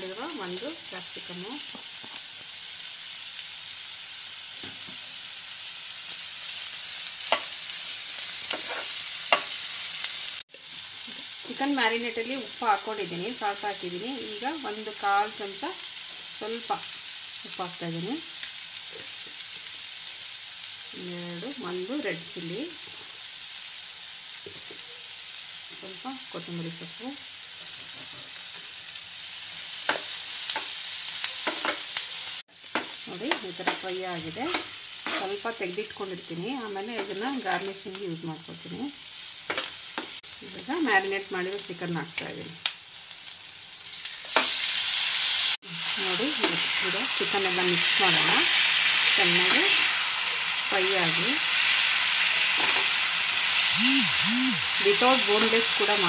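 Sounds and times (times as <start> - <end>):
vegetables sizzling in oil: 0.0 - 56.0
spatula scraping pan: 8.5 - 9.6, 33.6 - 35.4.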